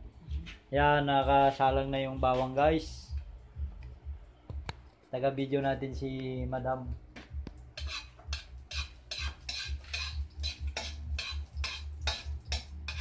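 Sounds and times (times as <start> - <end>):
metal spatula scraping a wok: 7.8 - 13.0.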